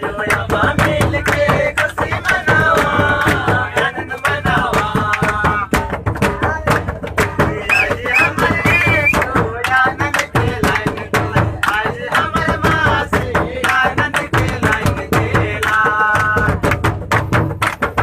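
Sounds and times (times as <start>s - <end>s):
group singing devotional song: 0.0s - 5.9s, 7.2s - 16.7s
barrel drums: 0.0s - 18.0s.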